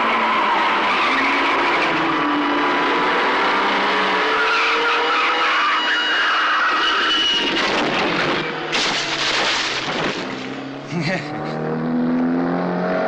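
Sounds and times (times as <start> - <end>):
car engines running hard: 6.7 - 13.0.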